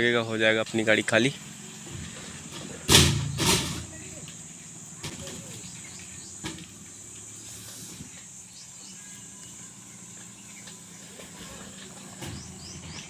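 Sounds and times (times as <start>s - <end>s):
insect buzz: 1.3s - 13.0s
plastic pipes clattering and scraping: 1.9s - 4.0s.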